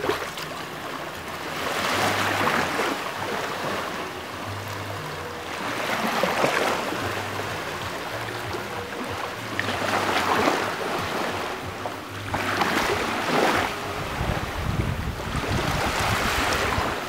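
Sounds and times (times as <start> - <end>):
wind rumble on microphone: 0.0 - 17.0
waves washing over pebbles: 9.3 - 17.0.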